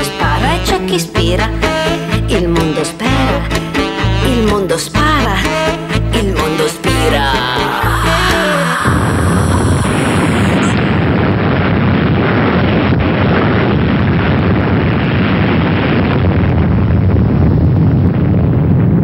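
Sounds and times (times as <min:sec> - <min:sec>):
explosion roar: 0:07.3 - 0:12.4.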